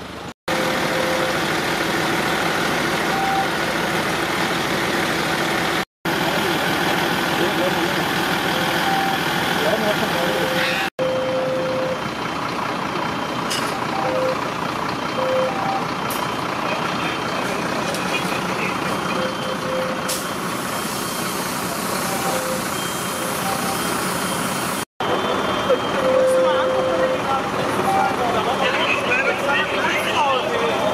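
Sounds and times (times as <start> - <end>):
diesel engine running: 0.0 - 30.9
short high beeps: 10.3 - 12.0, 13.7 - 14.4, 15.2 - 15.9, 19.1 - 21.3, 22.0 - 24.5, 25.2 - 28.2.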